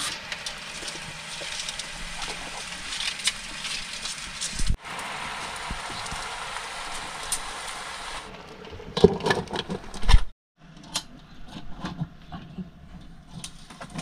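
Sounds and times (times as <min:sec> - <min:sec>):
crabs sizzling in a wok: 0:00.0 - 0:08.3.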